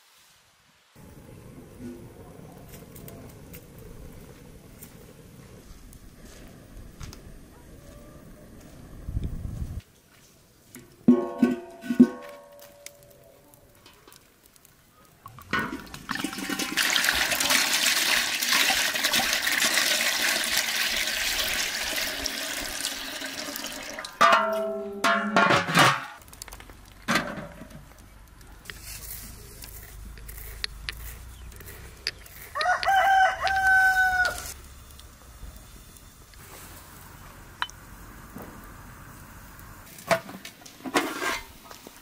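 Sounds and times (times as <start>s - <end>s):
water pouring into a pot: 15.3s - 24.2s
rooster crowing: 32.5s - 34.6s.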